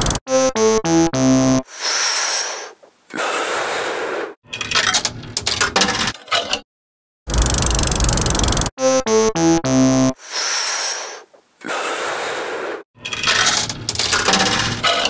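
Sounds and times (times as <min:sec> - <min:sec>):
slot machine reels whirring: 0:07.3 - 0:08.7, 0:13.0 - 0:15.0
coin clattering into slot machine: 0:13.1 - 0:15.0.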